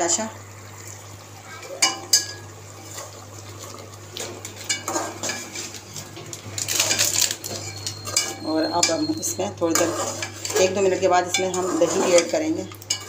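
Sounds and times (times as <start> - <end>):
metal spatula scraping a steel pot: 7.5 - 13.0.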